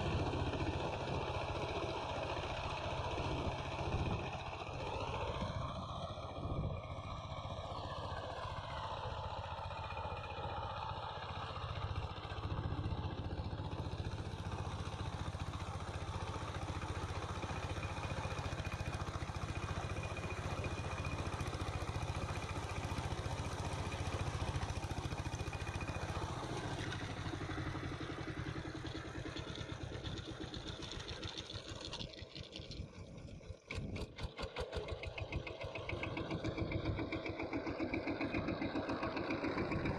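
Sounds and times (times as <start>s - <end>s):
diesel tiller engine chugging: 0.0s - 39.9s
tiller churning soil: 8.4s - 39.9s.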